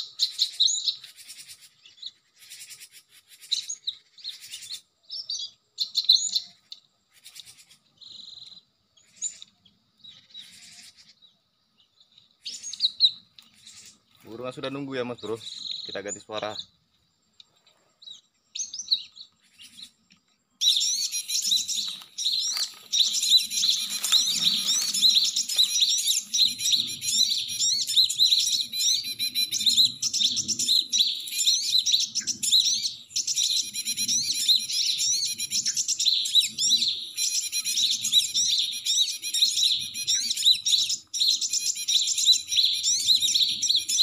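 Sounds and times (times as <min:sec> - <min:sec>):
bird calls from speaker: 0:20.6 - 0:27.9.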